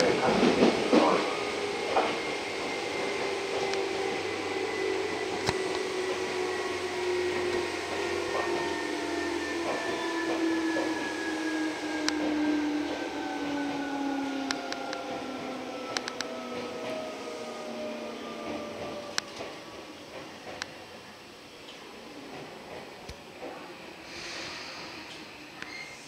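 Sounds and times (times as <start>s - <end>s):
train running rumble: 0.0s - 11.1s.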